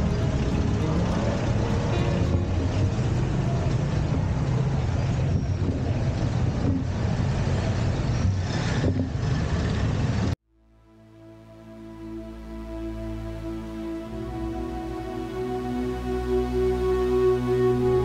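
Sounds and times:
wind rumbling on microphone: 0:00.0 - 0:10.3
vehicle engine and road noise: 0:00.0 - 0:10.4.

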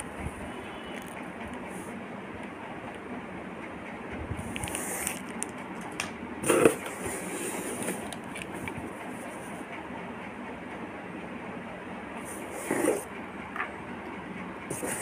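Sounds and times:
packaging rustling and crackling: 0:04.5 - 0:08.8.

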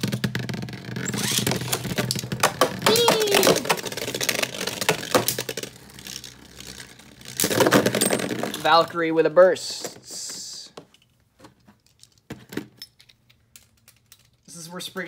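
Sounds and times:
spinning top rattling: 0:00.0 - 0:08.8.

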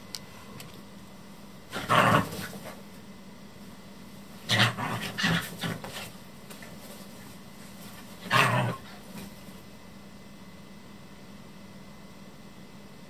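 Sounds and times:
dog growling barks: 0:01.7 - 0:02.8, 0:04.4 - 0:06.2, 0:08.1 - 0:09.3.

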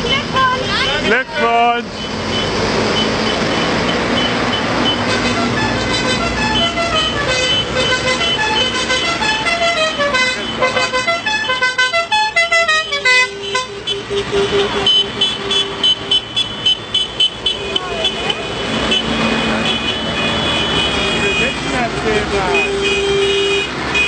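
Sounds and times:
tractor diesel engines running: 0:00.0 - 0:24.0
musical horn playing a tune: 0:04.7 - 0:21.6.

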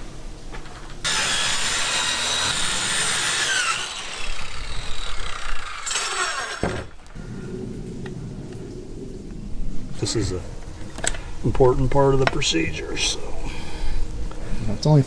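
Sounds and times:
circular saw cutting plywood: 0:01.0 - 0:07.1
plywood knocks and scraping: 0:06.6 - 0:06.9.

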